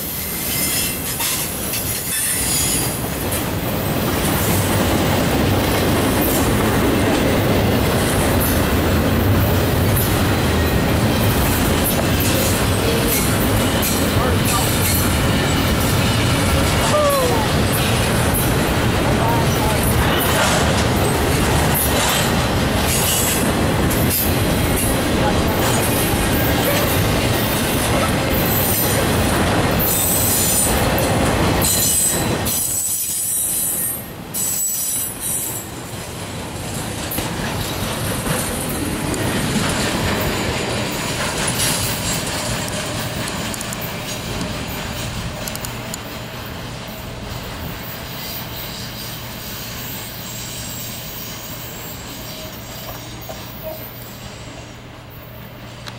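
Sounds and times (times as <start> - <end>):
freight train rolling past: 0.0 - 55.9
steel wheels clacking on rails: 0.0 - 55.9
high-pitched wheel squeal: 0.1 - 2.9.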